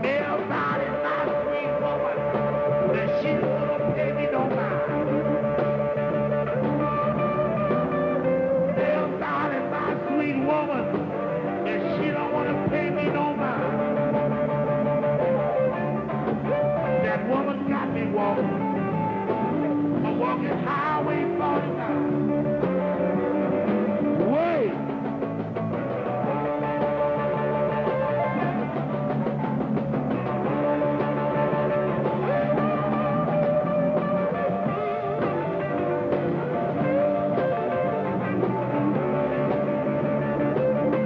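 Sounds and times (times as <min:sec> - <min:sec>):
electric blues band playing: 0:00.0 - 0:41.0
harmonica wailing: 0:00.0 - 0:41.0.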